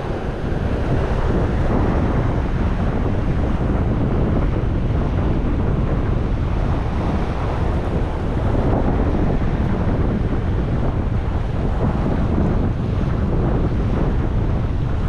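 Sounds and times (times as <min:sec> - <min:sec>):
surf surging against rocks: 0:00.0 - 0:15.0
wind buffeting microphone: 0:00.0 - 0:15.0.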